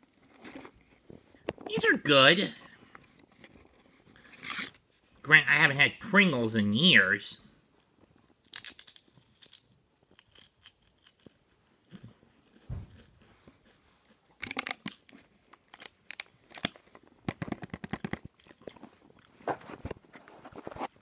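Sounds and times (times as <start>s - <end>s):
crisps crunching while chewed: 7.7s - 20.6s.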